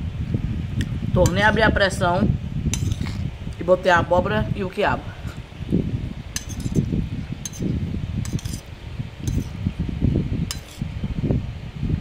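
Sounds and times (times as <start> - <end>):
metal utensil clinking on glass plate: 2.8 - 3.1, 6.4 - 8.7, 9.3 - 9.5, 10.5 - 10.8.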